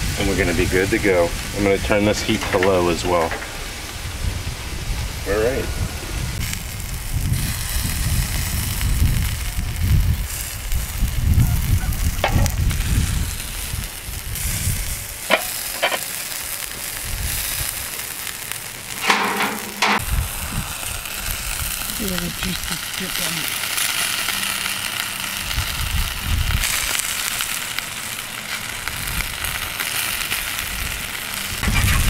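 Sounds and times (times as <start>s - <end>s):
wind rumbling on microphone: 0.0s - 15.4s, 16.9s - 18.0s, 19.0s - 23.2s, 25.3s - 27.0s, 28.8s - 29.8s, 30.5s - 32.0s
chicken sizzling on grill: 0.0s - 32.0s
aluminum foil rustle: 6.4s - 32.0s.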